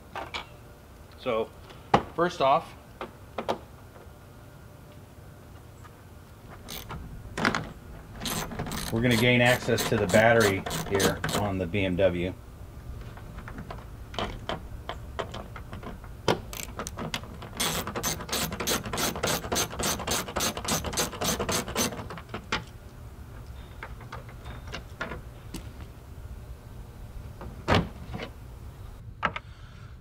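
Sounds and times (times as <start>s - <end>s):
hand ratchet clicking: 6.7s - 7.0s, 8.2s - 11.5s, 16.5s - 22.1s.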